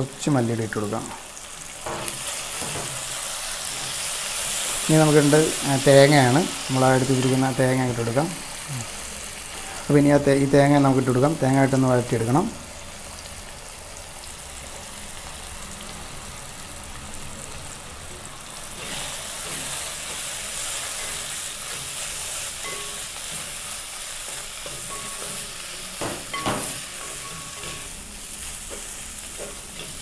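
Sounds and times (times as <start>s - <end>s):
food sizzling in a pan: 0.0s - 30.0s
spoon scraping a pan: 18.8s - 28.0s.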